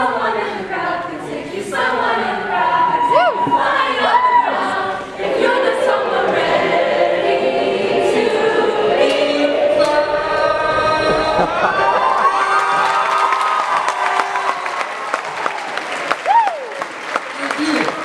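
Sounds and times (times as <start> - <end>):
music: 0.0 - 14.4
voices singing together: 0.0 - 14.4
crowd whooping and cheering: 2.8 - 4.9, 10.8 - 18.0.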